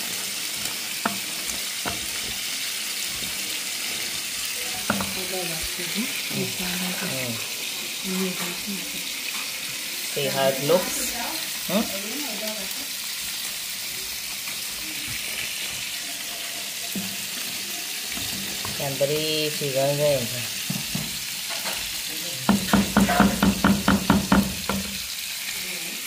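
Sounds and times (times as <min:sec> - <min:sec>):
curry bubbling and sizzling: 0:00.0 - 0:26.0
spatula knocking against pot: 0:22.5 - 0:25.0.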